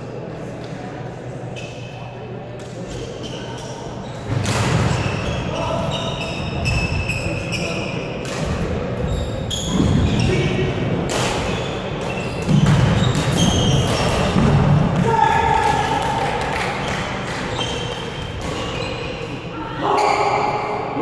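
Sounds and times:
sneakers squeaking on wooden floor: 2.9s - 10.7s, 11.4s - 14.6s, 16.8s - 20.4s.

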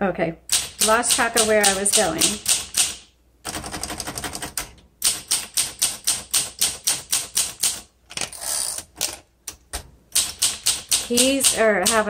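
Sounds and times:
typewriter keystrokes: 0.5s - 7.9s, 10.2s - 12.0s.

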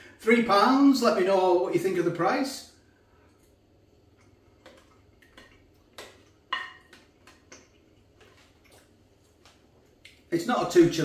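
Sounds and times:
soft chewing and cutlery clicks: 3.3s - 10.2s.

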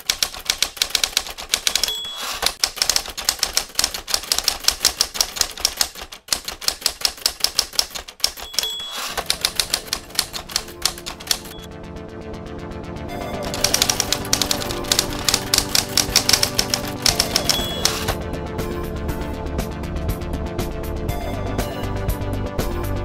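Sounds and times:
typewriter keys clacking: 0.0s - 11.7s, 13.4s - 18.2s
typewriter bell ding: 1.0s - 3.1s, 7.7s - 11.7s, 13.5s - 18.2s.

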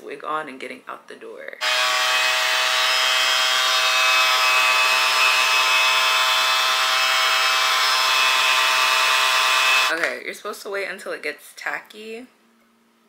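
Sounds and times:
hair dryer running: 1.6s - 10.0s.

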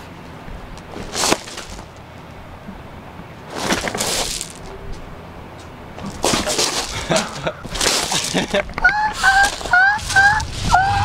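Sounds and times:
wooden swords cracking: 1.0s - 1.9s, 6.0s - 9.7s.

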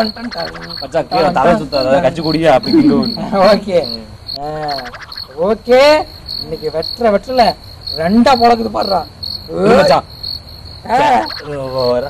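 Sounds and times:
short voice-like calls: 0.0s - 5.4s
crickets chirping: 0.0s - 12.0s.

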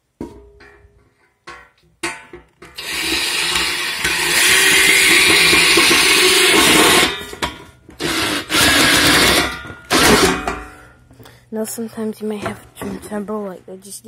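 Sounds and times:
cordless drill driving screw: 2.8s - 7.1s, 8.0s - 10.2s.

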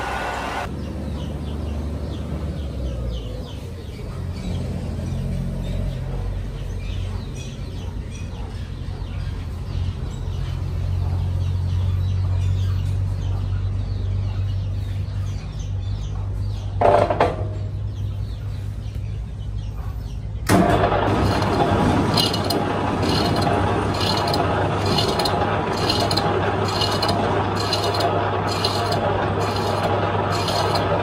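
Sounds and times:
birds chirping: 0.7s - 31.0s
low machine hum: 17.0s - 31.0s.

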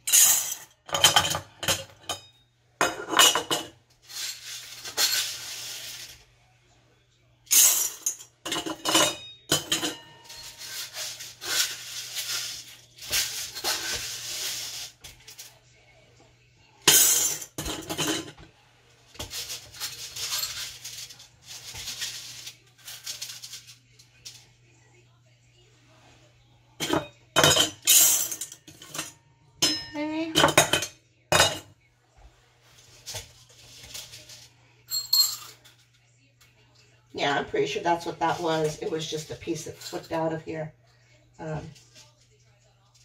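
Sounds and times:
beans rattling on metal and glass: 0.0s - 2.2s, 2.8s - 6.2s, 7.5s - 15.6s, 16.9s - 18.4s, 19.2s - 24.4s, 26.8s - 29.2s, 33.6s - 35.8s.

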